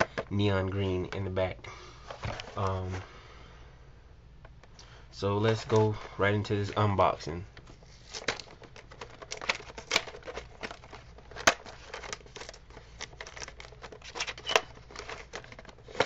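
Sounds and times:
cardboard box packaging rustling: 7.8 - 16.0.

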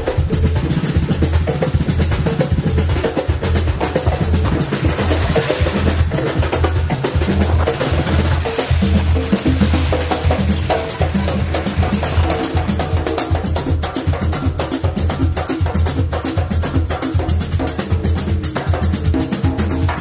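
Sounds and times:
quick percussion beat: 0.0 - 20.0
strong bass line: 1.8 - 14.4.

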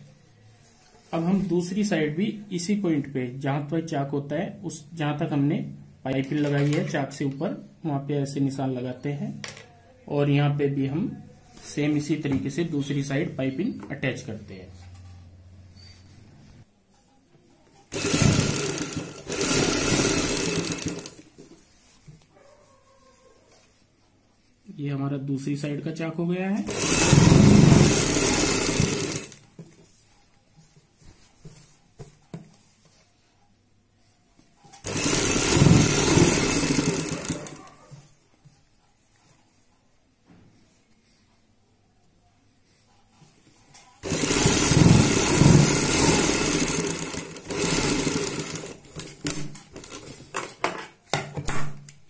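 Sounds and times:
sewing machine stitching: 17.9 - 21.3, 26.6 - 29.4, 34.8 - 37.9, 44.0 - 50.2.

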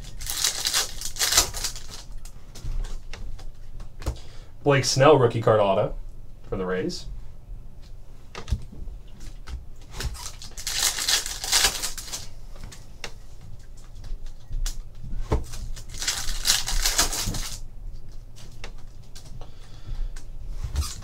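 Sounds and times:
foil wrapper crinkling and tearing: 0.0 - 2.3, 10.0 - 12.3, 15.4 - 17.6.

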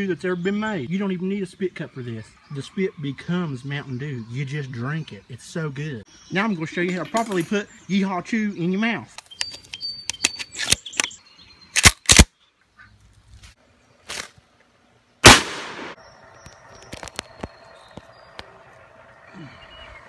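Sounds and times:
rustle: 11.8 - 20.0.

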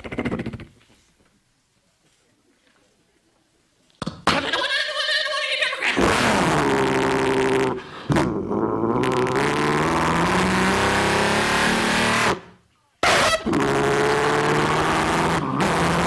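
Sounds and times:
man imitating truck engine: 6.0 - 12.2.

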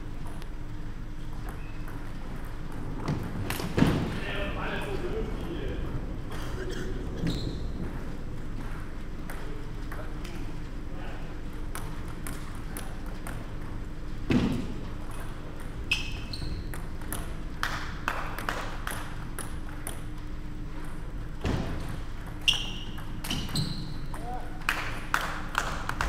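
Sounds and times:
shoes squeaking on floor: 1.5 - 2.0, 7.2 - 7.8, 15.9 - 16.7, 22.4 - 24.1.

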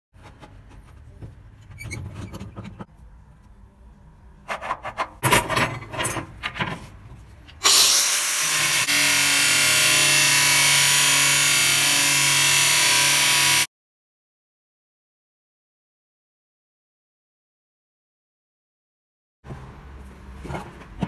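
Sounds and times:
angle grinder cutting steel rod: 7.6 - 13.7.

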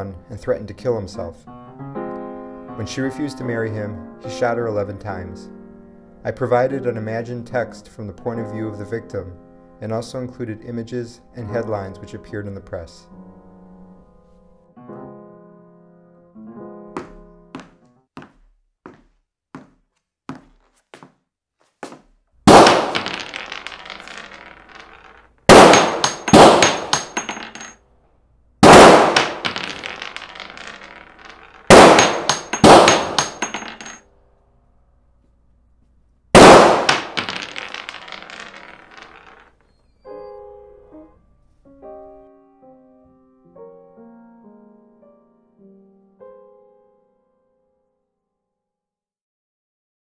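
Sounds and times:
slow piano melody: 1.4 - 4.4, 5.2 - 6.3, 8.4 - 9.8, 13.0 - 18.1, 40.0 - 48.1
gunshots with long echo: 25.5 - 27.0, 28.6 - 29.4, 31.7 - 33.4, 36.4 - 37.2.

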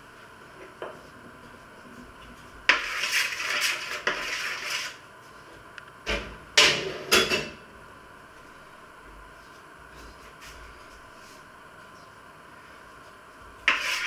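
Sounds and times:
metal spoon scraping baking tray: 2.7 - 5.0, 13.7 - 14.0.

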